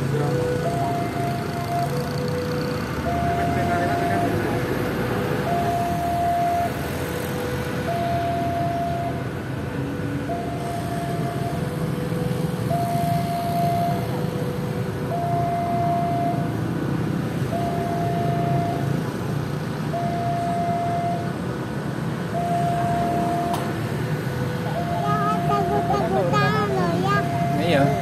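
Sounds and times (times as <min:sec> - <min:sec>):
level crossing alarm two-note signal: 0:24.8 - 0:28.0.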